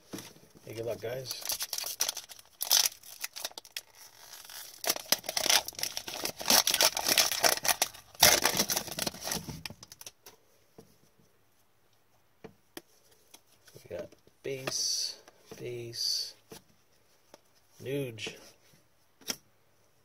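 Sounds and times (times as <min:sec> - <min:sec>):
foil wrapper tearing and crinkling: 0:01.3 - 0:10.1.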